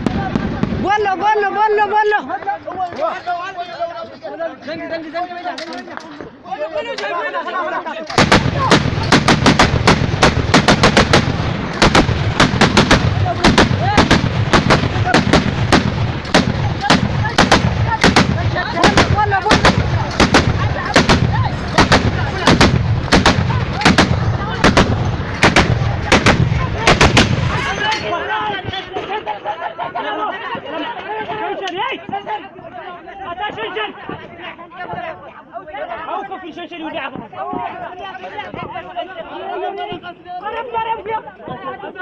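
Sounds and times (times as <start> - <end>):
machine gun firing bursts: 8.1 - 27.4.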